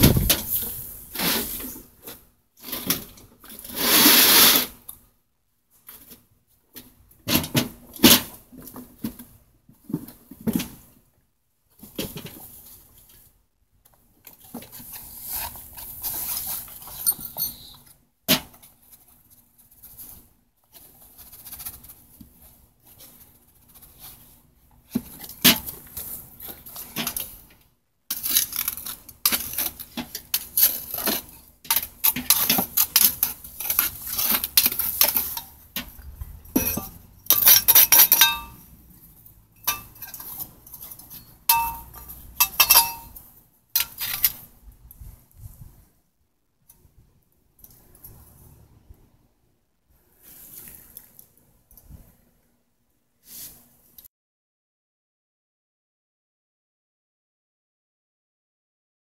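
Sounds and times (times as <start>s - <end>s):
metal knocks and clinks: 36.5s - 38.6s, 41.1s - 43.2s.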